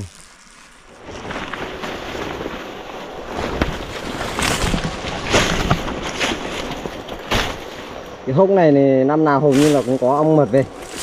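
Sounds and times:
fabric rustling: 0:00.0 - 0:08.1.

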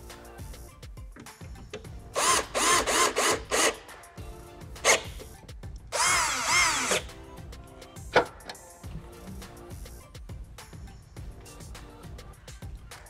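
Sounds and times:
cordless drill driving screws: 0:02.2 - 0:03.8, 0:04.8 - 0:05.2, 0:06.0 - 0:07.1.

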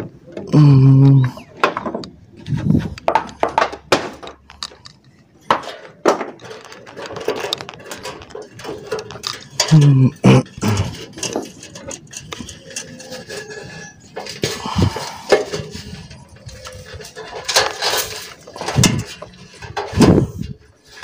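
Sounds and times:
small hard items clicking and clinking: 0:00.5 - 0:21.0.

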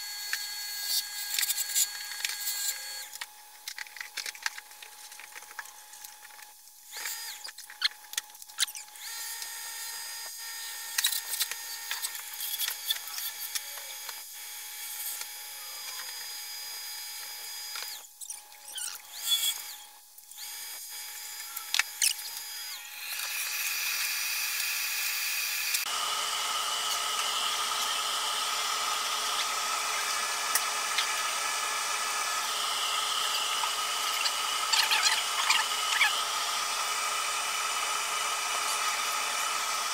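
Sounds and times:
wood lathe humming: 0:20.4 - 0:39.9.

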